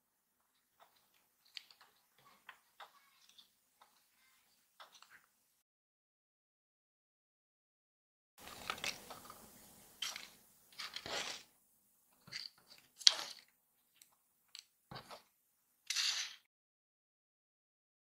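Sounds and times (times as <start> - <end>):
paper rustling and crinkling: 8.4 - 9.4, 10.0 - 11.5.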